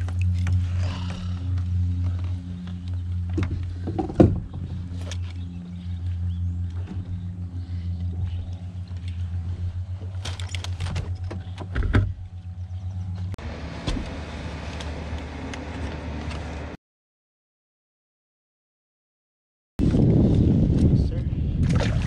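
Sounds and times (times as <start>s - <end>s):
low motor hum: 0.0s - 16.8s.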